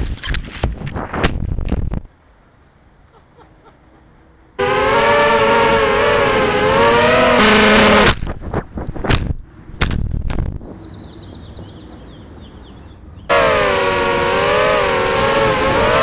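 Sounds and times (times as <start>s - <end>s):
drone propellers whining: 4.6s - 8.2s, 13.3s - 16.0s.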